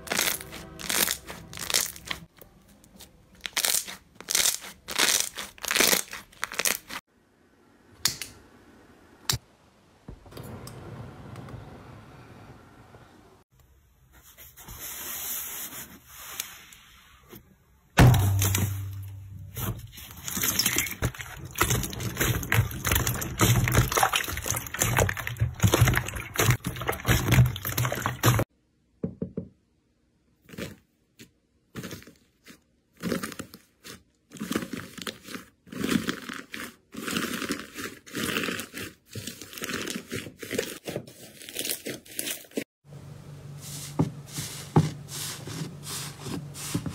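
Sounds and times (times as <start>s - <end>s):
slime crackling while stretched: 0.0s - 2.3s, 3.4s - 7.0s
slime squishing: 0.0s - 2.3s, 3.0s - 7.0s, 18.4s - 28.5s, 30.4s - 42.6s
faint slime crackle: 0.0s - 7.0s, 19.8s - 28.4s.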